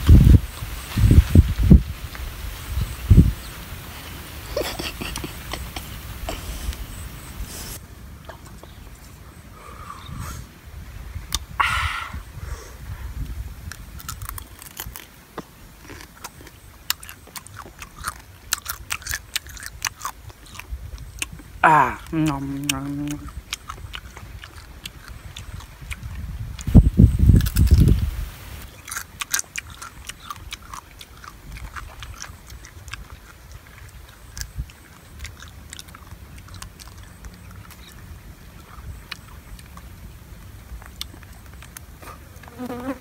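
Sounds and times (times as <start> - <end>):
person chewing crunchy crab shell: 13.6 - 26.7, 27.3 - 28.0, 28.7 - 42.9.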